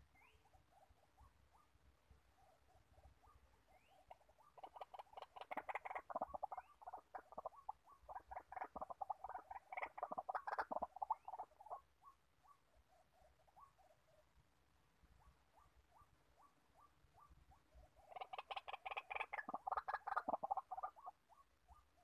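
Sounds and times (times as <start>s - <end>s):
waterhen calling: 3.2s - 12.6s, 15.6s - 21.9s.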